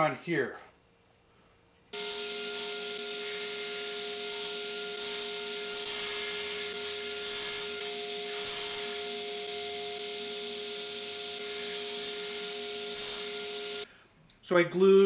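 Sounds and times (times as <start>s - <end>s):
saw cutting wood hiss: 1.9s - 13.9s
table saw whine: 1.9s - 13.9s.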